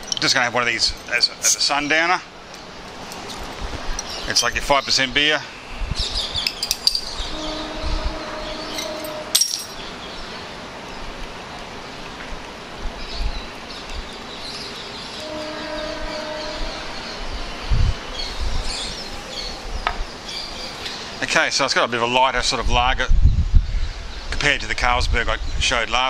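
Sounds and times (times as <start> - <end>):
train horn: 7.2 - 9.4, 15.1 - 17.6.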